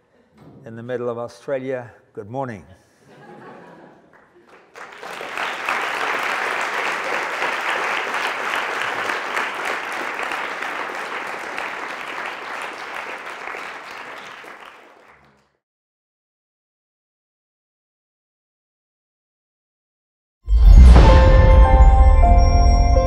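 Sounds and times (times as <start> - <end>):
audience applauding: 4.1 - 15.5.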